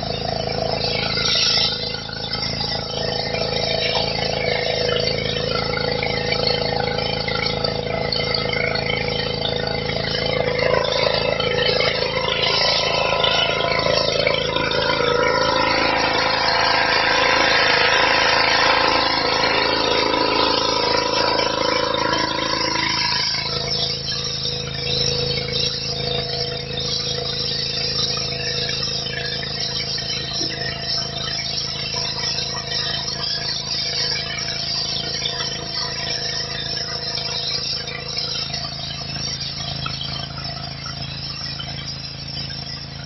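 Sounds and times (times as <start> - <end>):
pressure washer engine running: 0.0 - 32.0.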